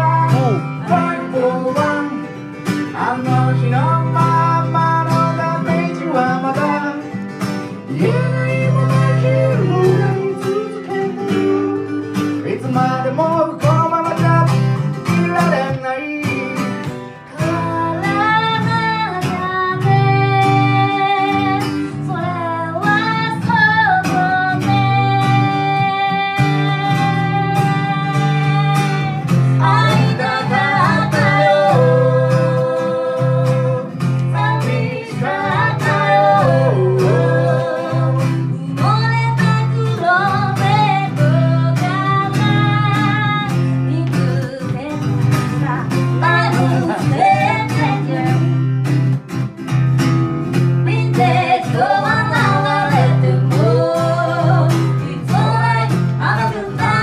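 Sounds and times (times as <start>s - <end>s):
person singing: 0.0s - 2.3s, 2.9s - 7.1s, 7.8s - 48.8s, 50.8s - 57.0s
guitar: 0.0s - 57.0s.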